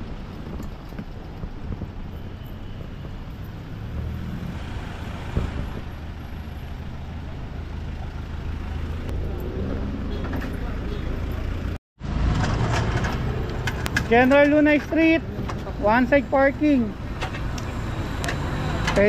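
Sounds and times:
vehicle engine idling: 0:05.7 - 0:11.8.

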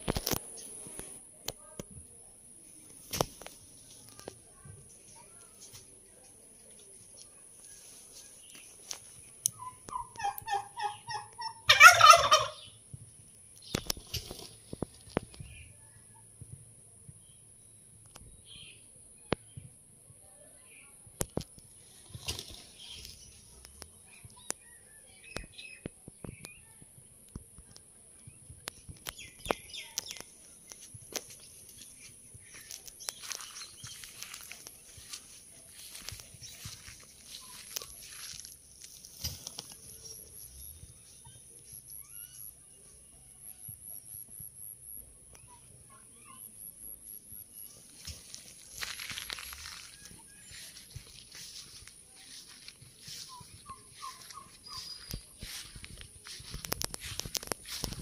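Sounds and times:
turkeys calling: 0:09.5 - 0:12.8, 0:32.4 - 0:40.4, 0:53.0 - 0:58.0
turkey gobble: 0:09.6 - 0:12.7
faint chirps: 0:27.7 - 0:57.9.

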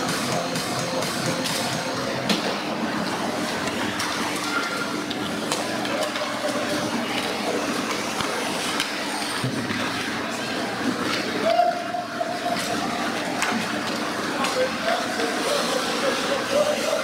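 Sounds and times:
echoing arena hum: 0:00.0 - 0:17.0
hockey sticks and puck clicking: 0:03.6 - 0:10.0.

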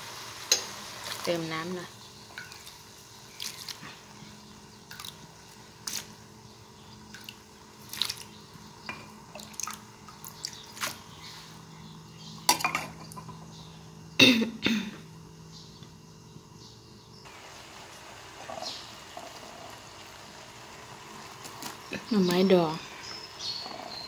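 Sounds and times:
faint steady hum: 0:00.0 - 0:24.0
small pops and drips: 0:04.8 - 0:06.1, 0:07.1 - 0:08.4, 0:09.0 - 0:11.0.

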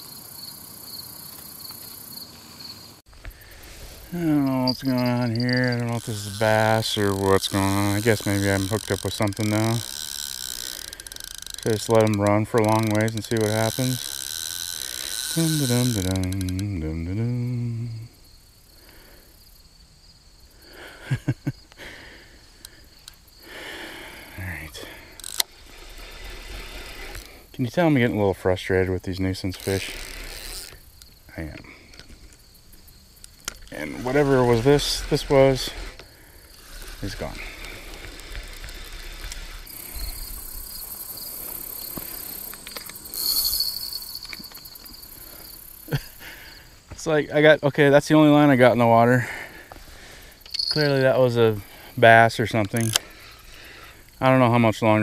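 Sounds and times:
crickets chirping: 0:00.0 - 0:55.0
high whirring: 0:24.9 - 0:27.5, 0:29.5 - 0:30.9, 0:33.4 - 0:46.1.

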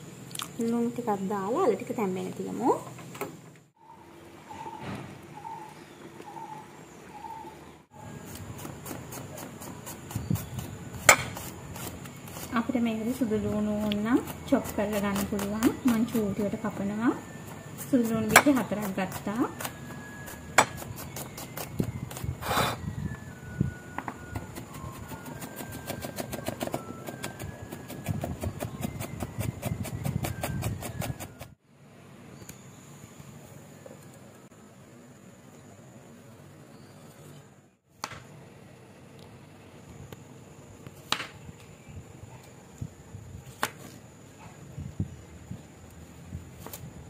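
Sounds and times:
knife chopping on wooden board: 0:08.3 - 0:12.5, 0:20.6 - 0:21.7.

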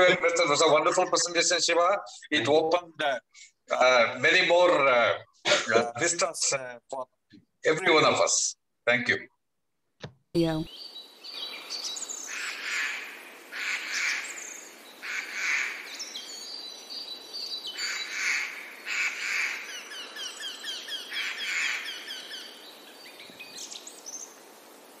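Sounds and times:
birds chirping and calling: 0:13.6 - 0:24.3.

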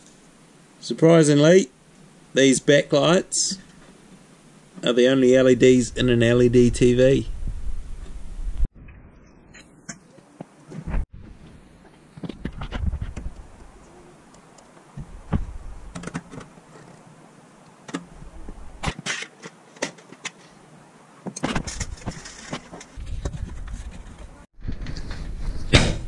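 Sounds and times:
low rumbling handling noise: 0:14.9 - 0:17.1.

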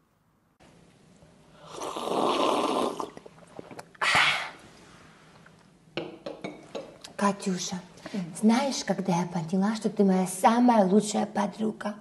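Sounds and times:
loud slurping of tea: 0:01.6 - 0:04.6.

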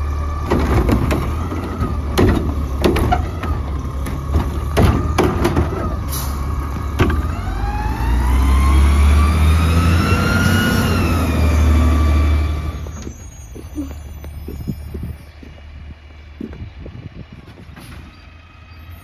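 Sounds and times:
garbage truck accelerating past: 0:00.0 - 0:13.9
clunk: 0:00.4 - 0:07.4.

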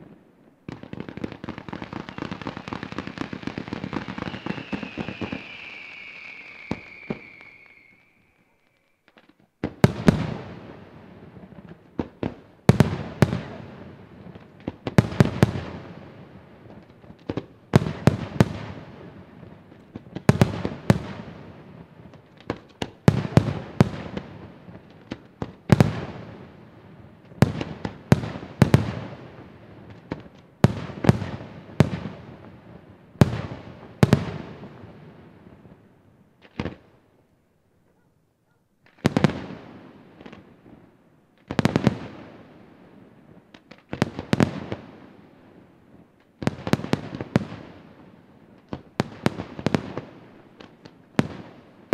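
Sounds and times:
falling firework whistle: 0:01.8 - 0:09.5
firework shells bursting: 0:02.0 - 0:09.5.

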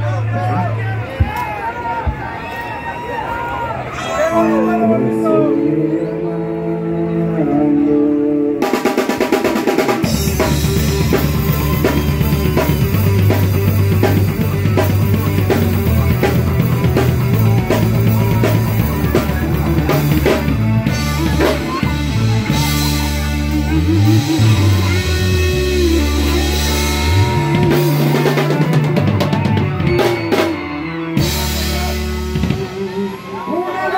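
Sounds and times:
held guitar and bass notes: 0:03.9 - 0:33.6
rock band playing live: 0:04.2 - 0:33.9
drumbeat: 0:08.9 - 0:23.0.

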